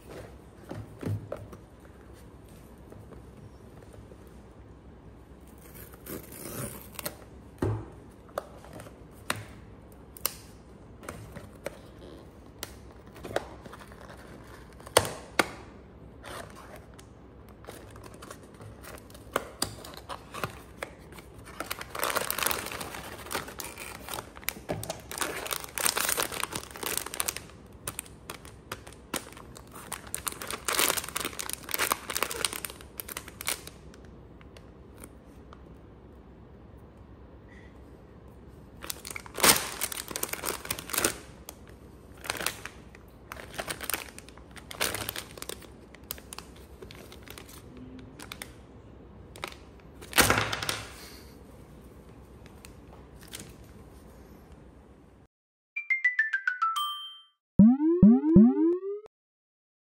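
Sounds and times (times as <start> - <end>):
plastic bag crinkling: 19.9 - 33.7, 38.8 - 41.3, 42.2 - 47.6.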